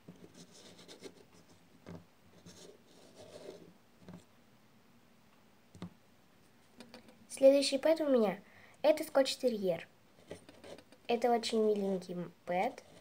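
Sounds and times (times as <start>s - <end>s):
plastic toy rubbing and scratching: 12.6s - 13.0s.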